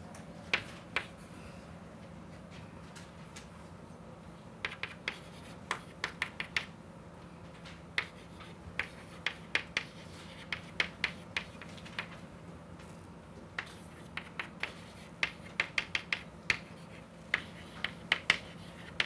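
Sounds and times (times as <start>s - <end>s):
chalk tapping and scratching: 0.5s - 1.2s, 4.6s - 6.7s, 8.0s - 12.2s, 13.6s - 19.0s.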